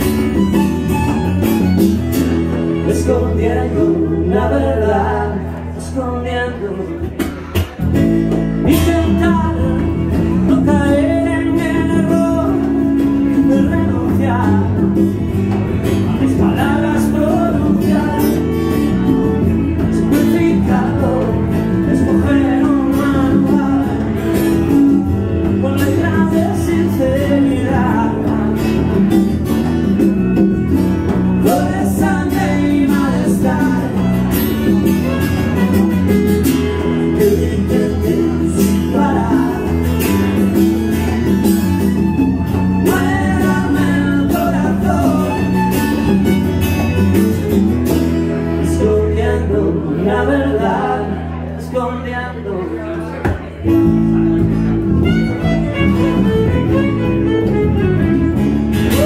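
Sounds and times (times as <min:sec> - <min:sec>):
bowed violin: 0:00.0 - 0:03.4, 0:40.1 - 0:47.3, 0:54.9 - 0:58.7
strummed acoustic guitar: 0:00.0 - 0:51.8, 0:53.1 - 0:59.0
electric bass: 0:00.0 - 0:59.0.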